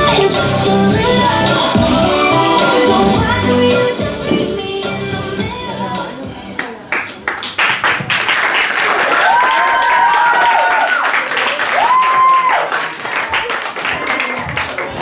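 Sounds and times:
audience clapping and cheering: 6.6s - 15.0s
high whoops: 9.1s - 12.8s.

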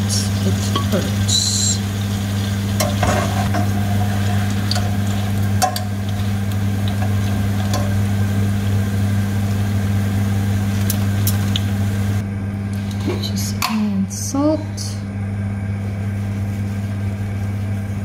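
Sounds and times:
chips sizzling in oil: 0.0s - 12.2s
steady low hum: 0.0s - 18.0s.

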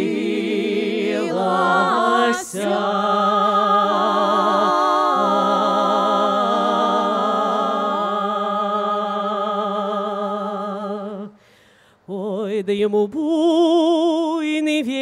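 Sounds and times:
women singing in harmony: 0.0s - 11.4s.

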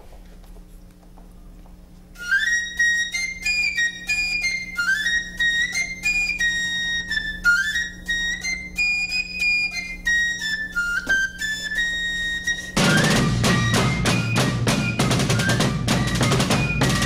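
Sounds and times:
wooden fife tune: 2.2s - 17.0s.

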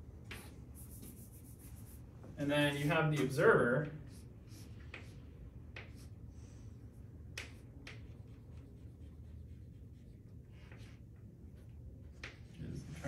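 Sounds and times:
low room hum: 0.0s - 13.0s
chalk tapping on chalkboard: 0.2s - 2.0s, 3.2s - 6.2s, 7.3s - 8.9s.

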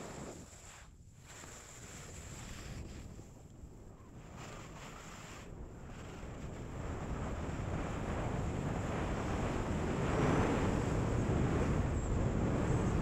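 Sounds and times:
skis hissing and scraping on snow: 0.0s - 3.3s, 4.3s - 6.6s
wind buffeting microphone: 2.4s - 13.0s.

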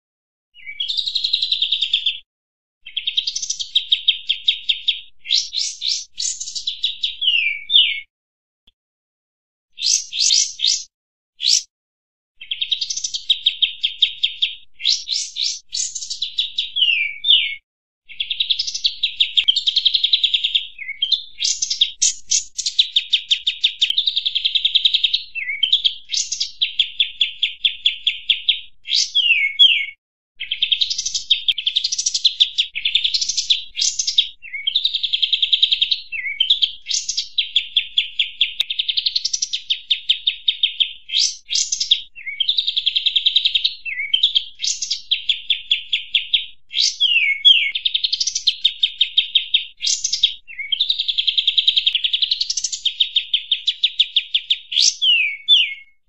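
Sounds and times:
bird whistled notes: 2.9s - 8.1s, 9.8s - 11.7s, 14.3s - 17.6s, 25.3s - 26.6s, 28.9s - 32.1s, 36.2s - 37.3s, 43.9s - 48.4s, 49.8s - 50.9s, 54.7s - 56.0s
songbird chattering trills: 9.8s - 11.7s.

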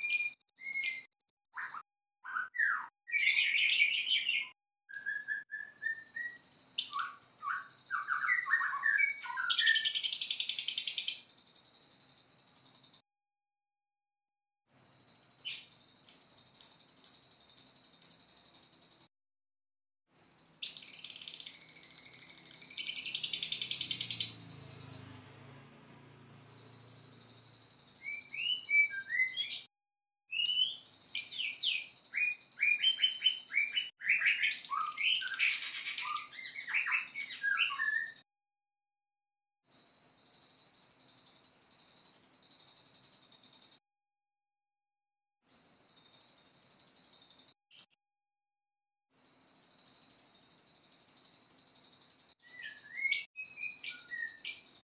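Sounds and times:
bird chirps and falling whistles: 0.0s - 11.3s, 20.6s - 25.0s, 27.9s - 29.7s, 30.3s - 38.3s, 52.4s - 54.8s
bird high trill: 20.6s - 25.0s.

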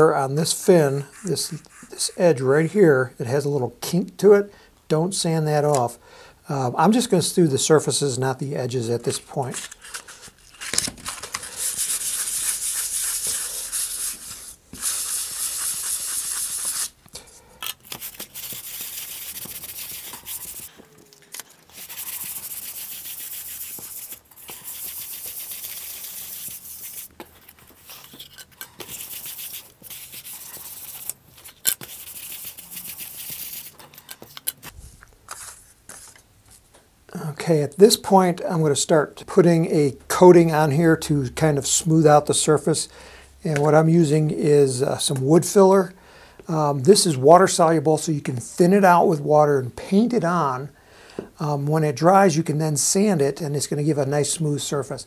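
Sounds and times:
sandpaper scratching on wood: 11.5s - 17.0s, 17.9s - 20.7s, 21.7s - 27.1s, 28.8s - 33.8s.

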